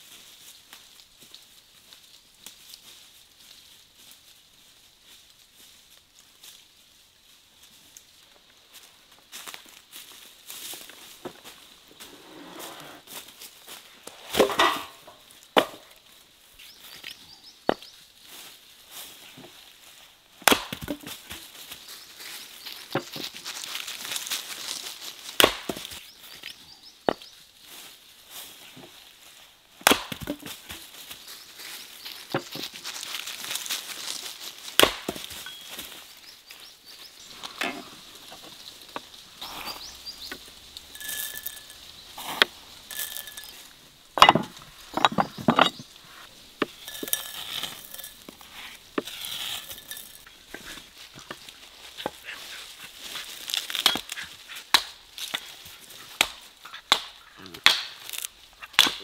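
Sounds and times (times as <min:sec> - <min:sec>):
axe chopping wood: 0:14.3 - 0:15.9, 0:20.4 - 0:21.4, 0:25.4 - 0:26.0, 0:29.8 - 0:30.7, 0:34.7 - 0:35.5, 0:44.2 - 0:45.8, 0:53.6 - 0:55.4, 0:56.1 - 0:59.0.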